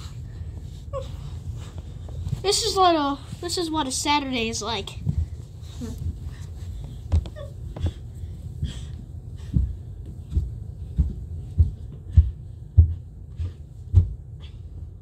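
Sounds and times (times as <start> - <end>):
thumps on carpeted stairs: 5.0 - 14.6.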